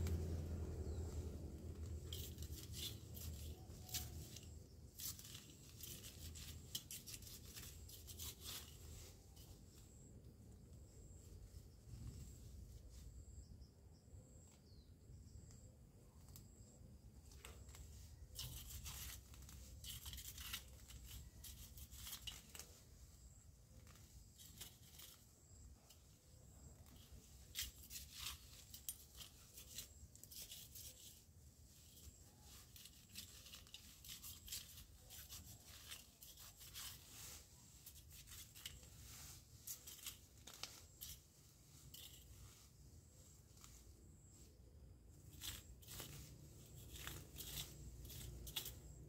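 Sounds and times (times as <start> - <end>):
low steady rumble: 0.0 - 3.8
plants rustling and tearing: 0.0 - 10.1, 16.3 - 44.4, 45.1 - 49.0.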